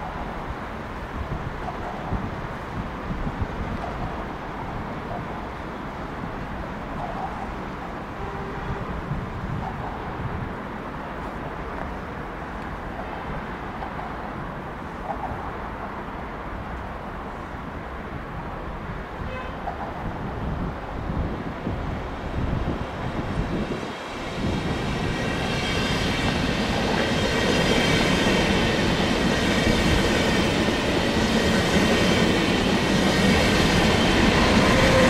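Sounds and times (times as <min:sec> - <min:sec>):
wind buffeting microphone: 0:00.0 - 0:15.8, 0:17.6 - 0:35.0.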